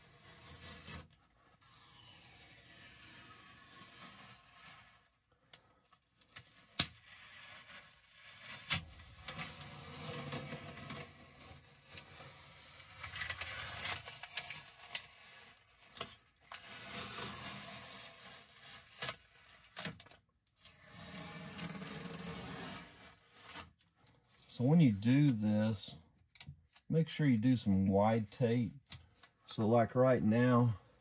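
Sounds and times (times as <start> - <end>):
masking tape peeling: 0.0 - 5.2, 6.2 - 20.0, 20.6 - 25.5.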